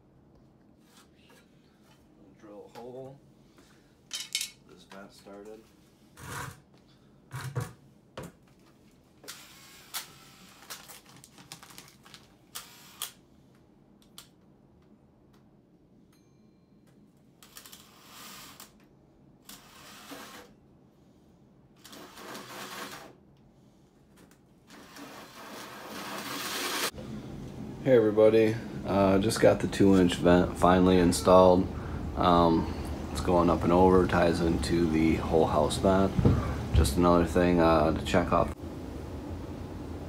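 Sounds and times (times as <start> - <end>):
cordless drill driving screws: 24.7 - 26.9.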